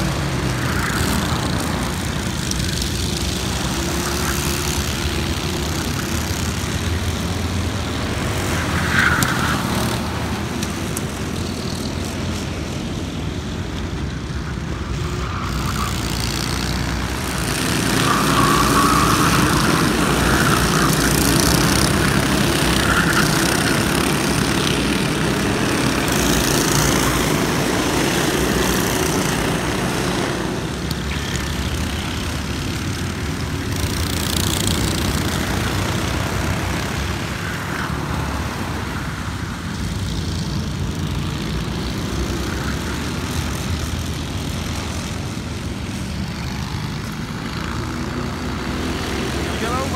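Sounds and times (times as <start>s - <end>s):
racing kart engines revving: 0.0s - 49.9s.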